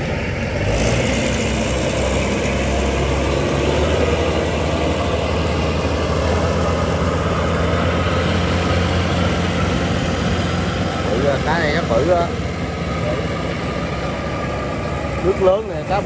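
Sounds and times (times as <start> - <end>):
combine harvester engine running: 0.0 - 16.0.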